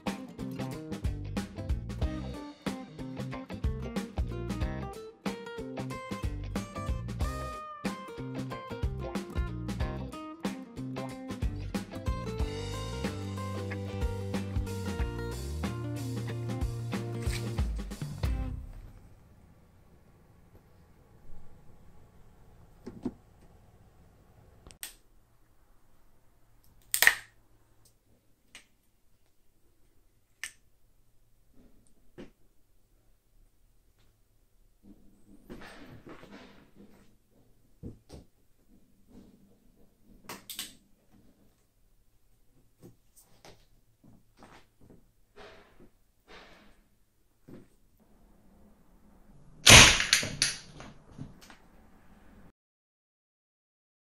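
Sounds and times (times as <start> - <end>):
sharp snap: 26.9 - 27.3, 49.6 - 50.7
crossbow mechanism clicks: 49.9 - 50.7.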